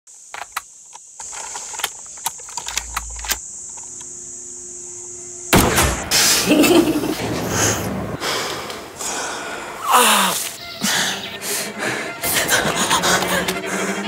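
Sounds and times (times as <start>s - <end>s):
sharp clicks: 0.3s - 4.1s
loud blast: 5.5s - 9.1s
low rumble: 6.7s - 9.2s
high-pitched drone: 9.9s - 14.0s.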